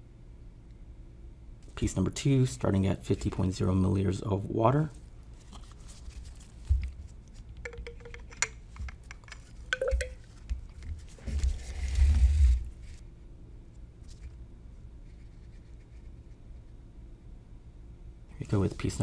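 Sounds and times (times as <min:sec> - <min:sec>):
rubbing scraping noise: 0:11.1 - 0:13.0.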